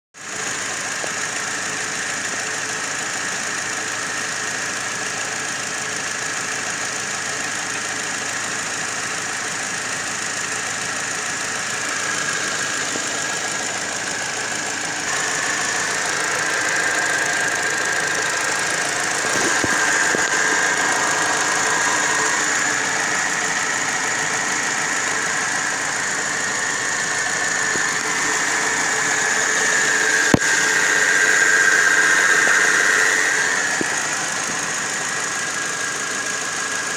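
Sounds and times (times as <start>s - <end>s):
car engine running: 0.2s - 36.9s
high-pitched squeal: 11.8s - 36.9s.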